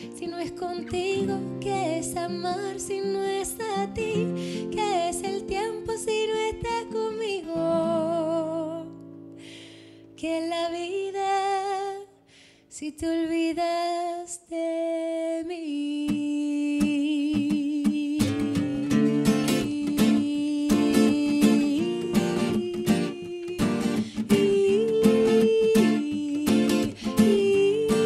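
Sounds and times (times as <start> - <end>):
woman singing with vibrato: 0.0 - 9.0, 10.2 - 12.2, 12.8 - 28.0
acoustic guitars strumming: 17.4 - 28.0.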